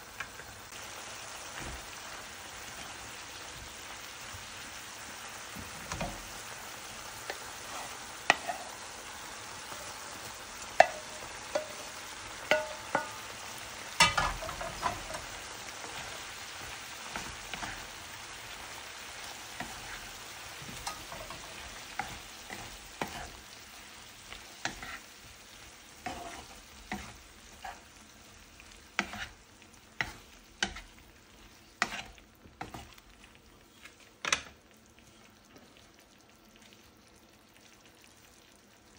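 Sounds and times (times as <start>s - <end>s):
food sizzling in a frying pan: 0.0s - 38.9s
spatula knocking and scraping pan: 7.2s - 8.7s, 10.7s - 17.9s, 19.5s - 23.4s, 24.3s - 25.4s, 26.0s - 27.9s, 28.9s - 29.4s, 30.0s - 31.0s, 31.8s - 33.0s.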